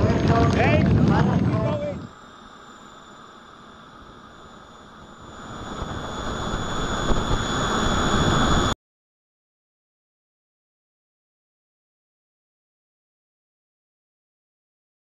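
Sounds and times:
model gas turbines whining: 0.0s - 8.8s.

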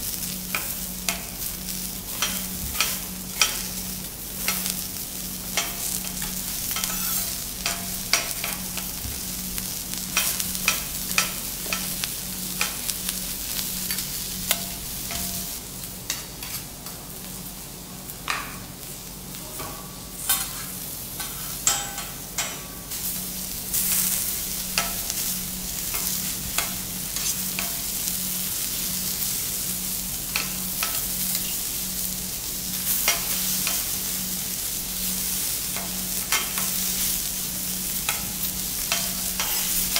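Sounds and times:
vegetables sizzling on a griddle: 0.0s - 39.9s
metal spatulas tapping: 5.6s - 8.9s, 14.5s - 15.5s, 21.2s - 22.8s, 24.8s - 25.1s, 25.9s - 27.8s.

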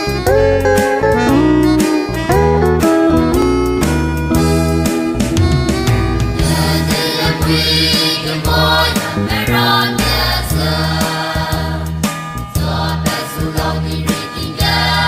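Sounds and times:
choir singing with accompaniment: 4.3s - 15.0s.

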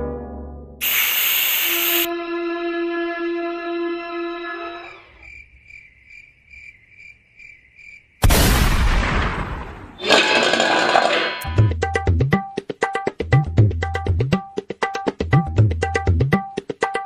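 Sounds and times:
cricket chirping sound effect: 3.7s - 8.7s
loud crash: 8.2s - 11.4s
steel plate clattering: 10.0s - 11.5s
tabla music: 11.4s - 17.0s.

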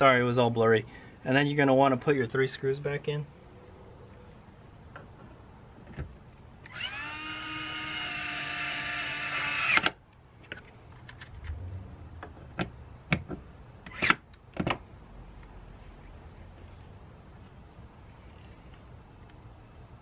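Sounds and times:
cordless drill motor whine: 6.7s - 9.8s.

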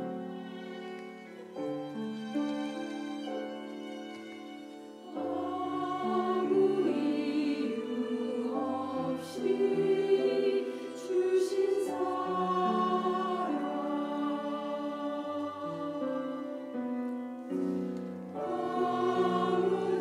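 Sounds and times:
violin accompaniment: 0.0s - 10.6s, 12.0s - 20.0s
church choir singing a hymn: 4.7s - 20.0s.

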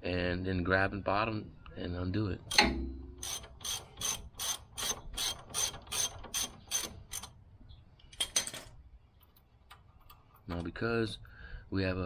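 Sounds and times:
ratchet wrench clicking: 2.5s - 7.4s.

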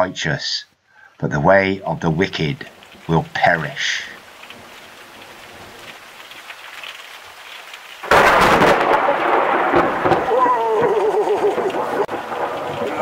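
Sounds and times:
steady rain: 0.0s - 13.0s
thunder rumbling: 1.8s - 13.0s
loud thunderclap: 8.0s - 13.0s.

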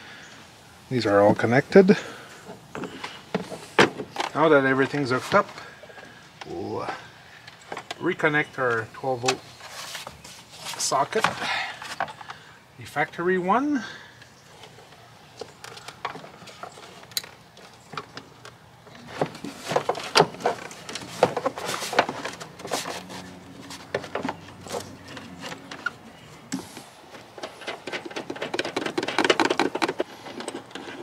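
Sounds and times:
plastic trim panel clicks and rattles: 27.4s - 31.0s.

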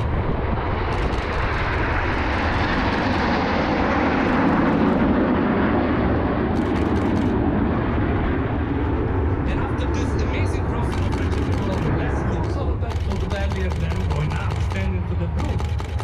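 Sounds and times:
jet aircraft roar: 0.0s - 16.0s
camera shutter clicks: 6.6s - 7.4s, 15.4s - 16.0s.

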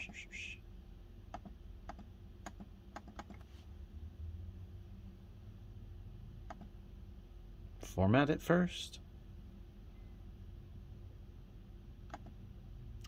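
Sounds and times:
faint low hum: 0.0s - 13.0s
laptop keys and mouse clicks: 1.3s - 3.4s, 6.5s - 6.7s, 12.1s - 12.4s.

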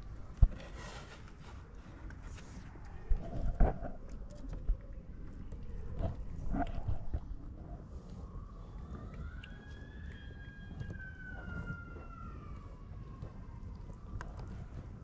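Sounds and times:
handling rustles: 0.0s - 4.6s
steady low rumble: 0.0s - 15.0s
siren wailing: 8.0s - 15.0s.

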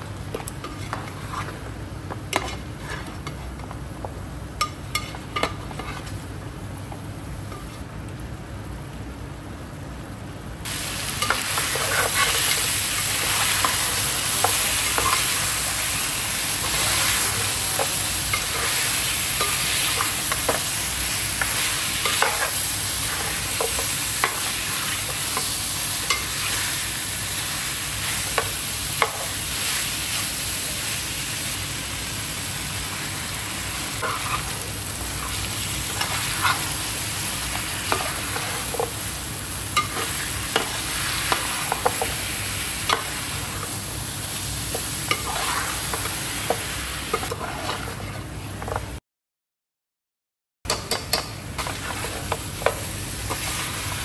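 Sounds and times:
food sizzling in oil: 10.6s - 48.6s, 50.7s - 54.0s
spoon scraping a pot: 45.1s - 45.7s, 47.2s - 48.3s.

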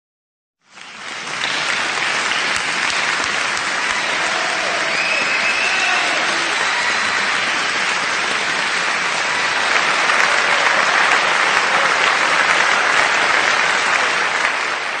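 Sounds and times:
crowd applause: 0.6s - 15.0s.

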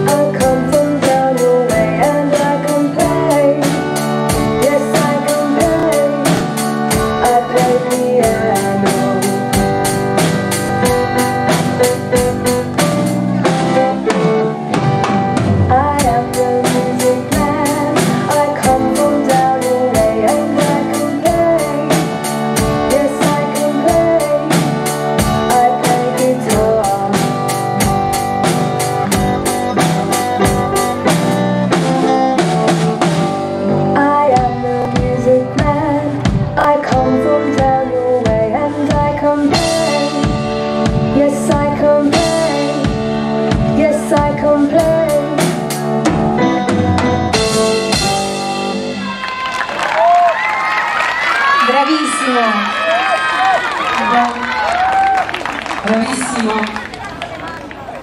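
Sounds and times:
person singing: 0.0s - 10.0s, 15.6s - 28.0s, 33.6s - 49.1s
drum kit rock beat: 0.0s - 50.4s
guitar: 0.0s - 58.0s.

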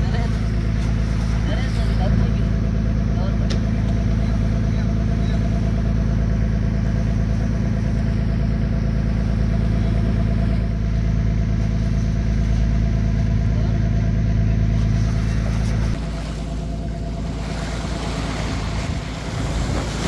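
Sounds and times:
boat engine low drone: 0.0s - 20.0s.

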